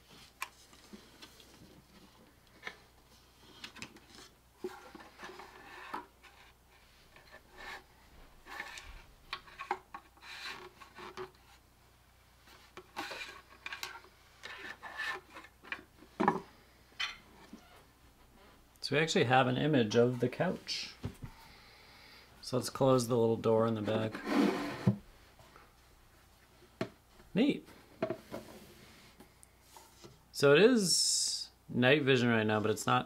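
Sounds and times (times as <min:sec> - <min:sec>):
wood rubbing and scraping: 0:23.8 - 0:25.0.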